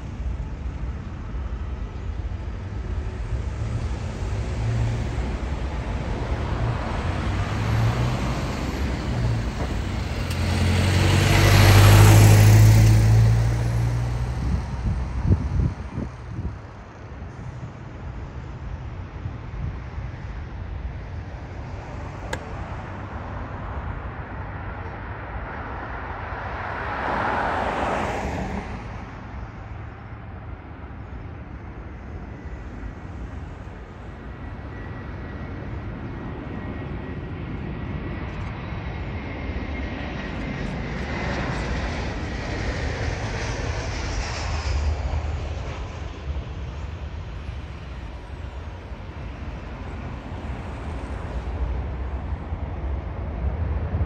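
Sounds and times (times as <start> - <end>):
wind rumbling on microphone: 0.0 - 26.8, 28.4 - 54.0
jet airliner engine noise: 0.0 - 54.0.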